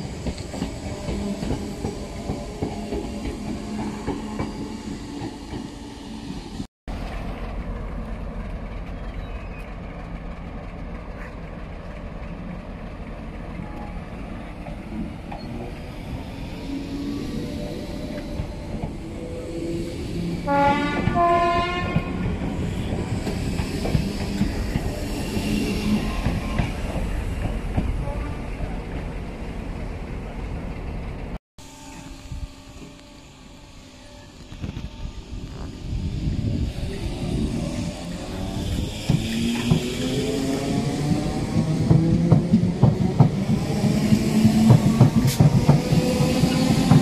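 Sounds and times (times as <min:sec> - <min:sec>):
electric train rumbling on track: 0:00.0 - 0:47.0
two-note train horn: 0:20.5 - 0:22.2.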